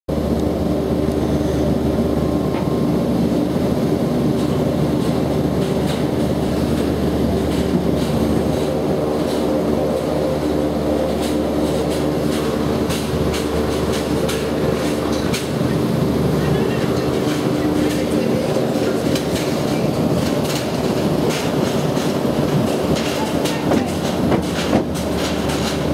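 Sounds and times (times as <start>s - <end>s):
mechanical hum with pitched tones: 0.1s - 25.9s
carriage clicking over wheels: 11.0s - 25.9s.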